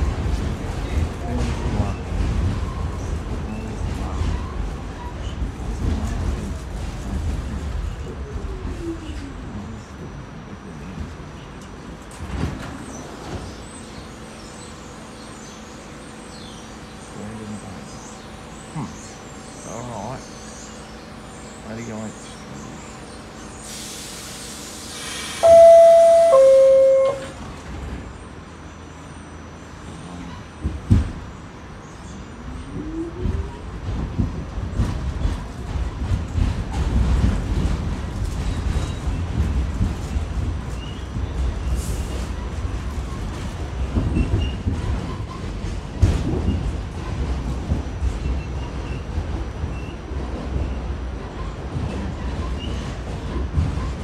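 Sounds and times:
subway train rumbling: 0.0 - 54.0
hiss: 23.6 - 25.4
two-tone door chime: 25.4 - 27.3.

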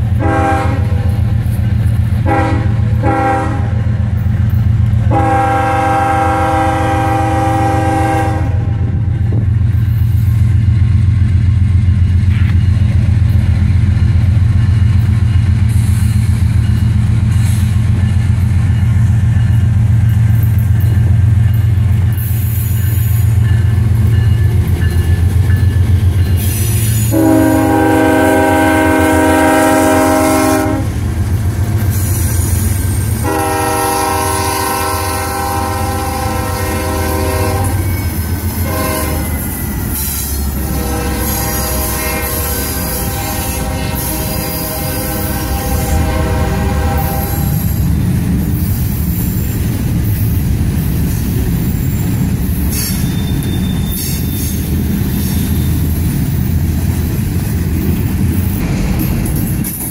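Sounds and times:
train wheels on rails: 0.0 - 59.9
locomotive air horn blasts: 0.2 - 1.2, 2.2 - 3.9, 5.1 - 8.9, 26.9 - 31.0, 33.2 - 39.4, 40.5 - 47.8.

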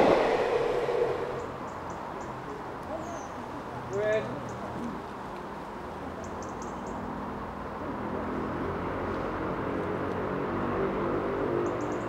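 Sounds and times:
steam locomotive hauling a train: 0.0 - 1.8.

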